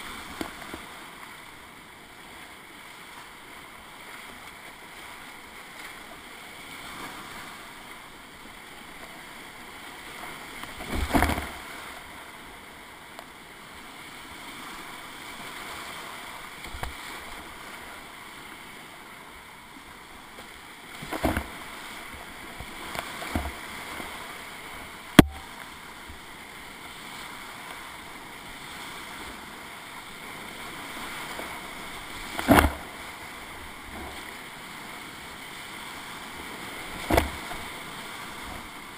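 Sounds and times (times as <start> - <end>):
splashes against boat: 10.7 - 12.0, 36.8 - 38.7.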